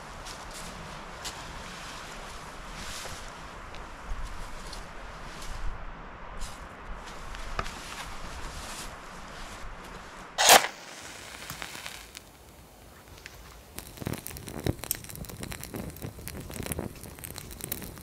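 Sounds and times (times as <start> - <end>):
pine needles crackling in fire: 0.0 - 5.7, 6.3 - 18.0
sharp scrape: 10.4 - 12.2.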